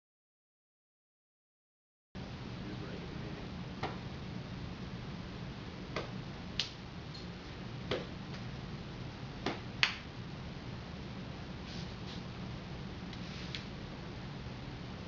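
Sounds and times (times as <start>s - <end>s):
low steady hum: 2.2s - 15.0s
hands slapping arms and body: 3.8s - 4.0s, 5.9s - 6.8s, 7.9s - 8.5s, 9.4s - 10.1s.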